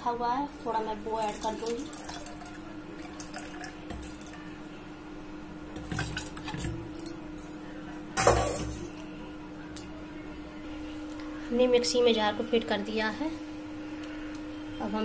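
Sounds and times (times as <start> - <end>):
steady low hum: 0.0 - 15.0
liquid trickling: 0.9 - 4.5
dish clattering: 8.2 - 8.9.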